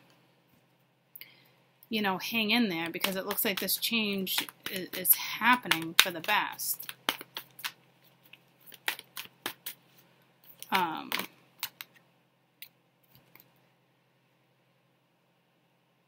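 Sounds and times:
cards clicking and tapping: 2.8s - 9.8s, 10.5s - 12.0s.

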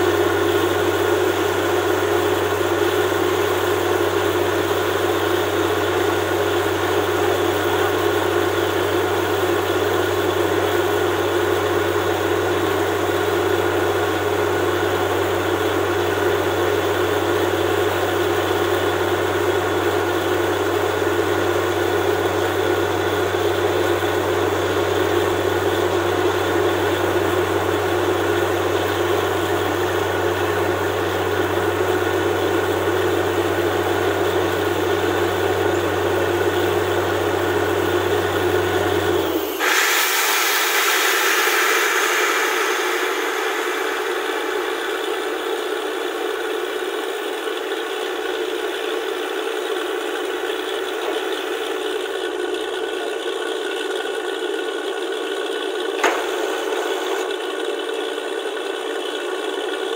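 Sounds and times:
drilling rig machine drone: 37.1s - 53.2s, 56.0s - 58.3s.

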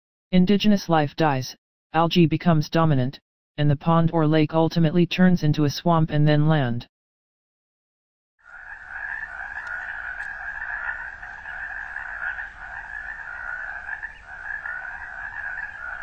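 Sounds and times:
chorus of frogs calling: 8.4s - 16.0s.

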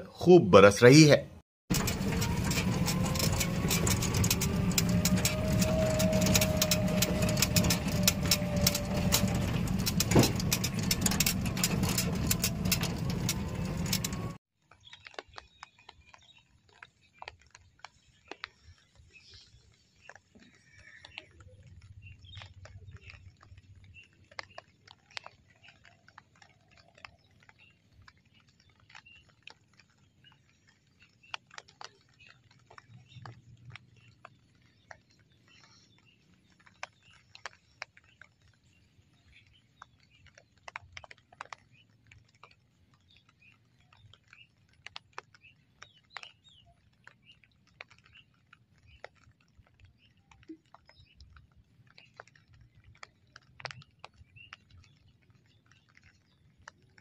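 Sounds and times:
low steady rumble: 1.7s - 14.4s
sharp clicks and ticks: 1.7s - 14.4s.

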